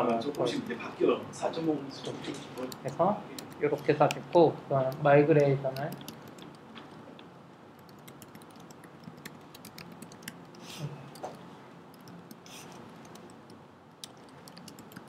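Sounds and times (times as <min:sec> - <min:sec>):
keyboard key clicks: 0:04.9 - 0:06.9.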